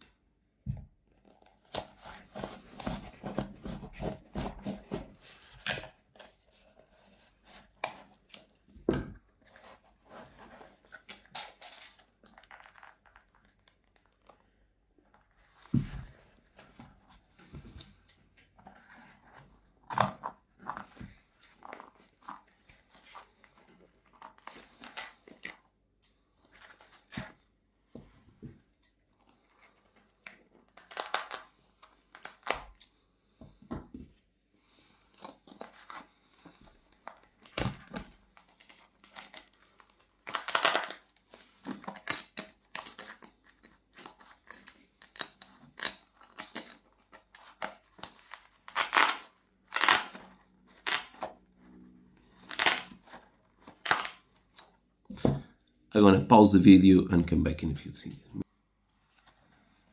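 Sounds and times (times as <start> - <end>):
shoe upper ripping from sole: 48.6 - 51.3, 53.8 - 54.2.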